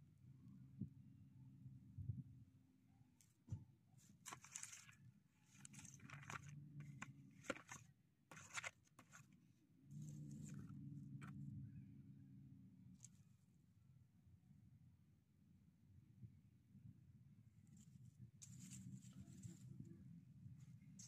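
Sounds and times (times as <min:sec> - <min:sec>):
dry rustling and crunching: 0:04.2 - 0:11.4
low steady hum: 0:04.3 - 0:21.0.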